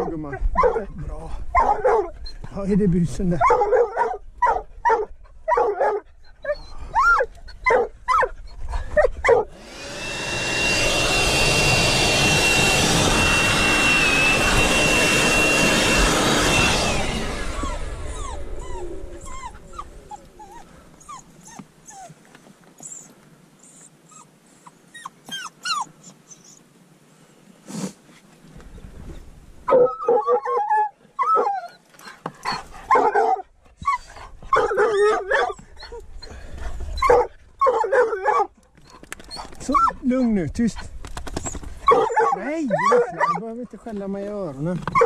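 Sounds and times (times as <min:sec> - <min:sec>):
dogs barking excitedly: 0:00.0 - 0:02.6, 0:03.3 - 0:09.7, 0:29.6 - 0:43.6
dogs whining: 0:00.0 - 0:02.6, 0:03.4 - 0:22.2, 0:22.8 - 0:26.7, 0:29.7 - 0:43.4
battery blower winding down: 0:09.5 - 0:20.6.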